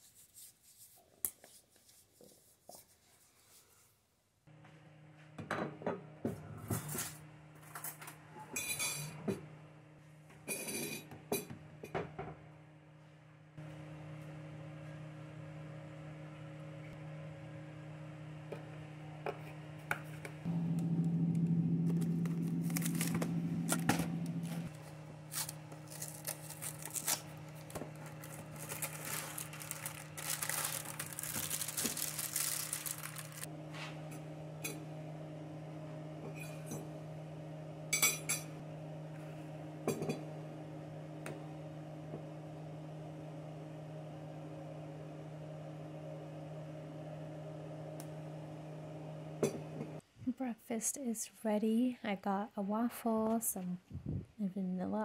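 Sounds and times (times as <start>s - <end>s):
steady low hum: 12.6s - 50.4s
plastic bag crinkling: 22.0s - 33.5s.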